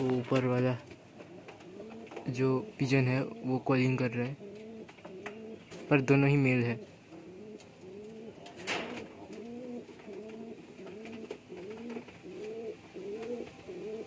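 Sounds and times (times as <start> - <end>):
pigeon cooing: 1.2 - 3.4, 4.3 - 5.9, 6.7 - 14.0.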